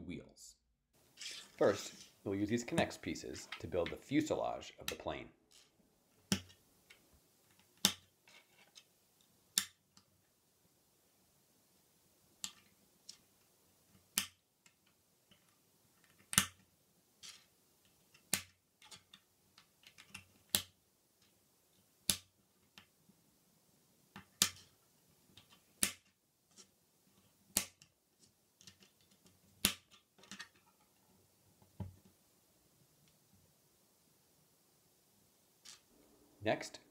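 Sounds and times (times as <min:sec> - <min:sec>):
plastic rods clicking into connectors: 0:27.5 - 0:27.9, 0:28.6 - 0:30.6.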